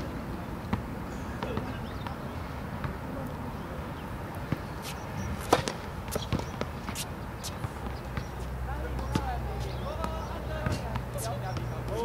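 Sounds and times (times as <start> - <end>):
racket hitting tennis ball: 4.5 - 9.3
ball bouncing on hard court: 5.4 - 9.4.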